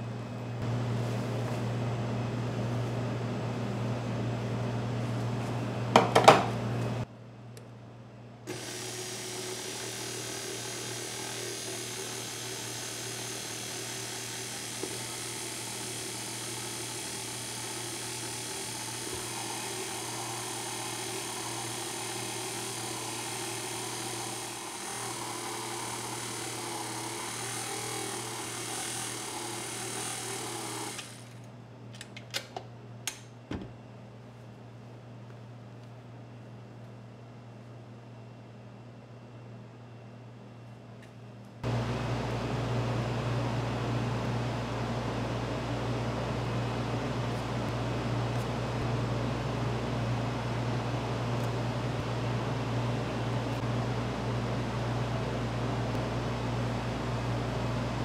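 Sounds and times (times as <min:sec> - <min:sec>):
electric mixer motor running: 0:08.5 - 0:31.4.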